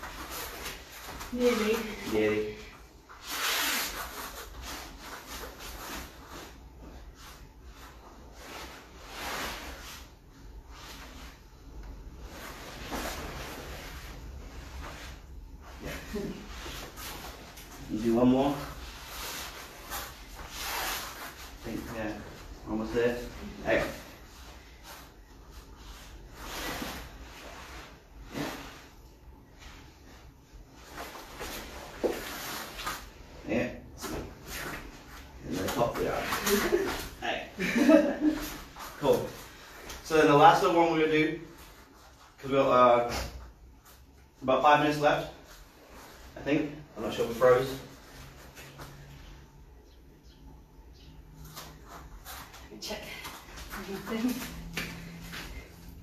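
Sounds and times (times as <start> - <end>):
rustling and shuffling on mats: 0.0 - 56.0.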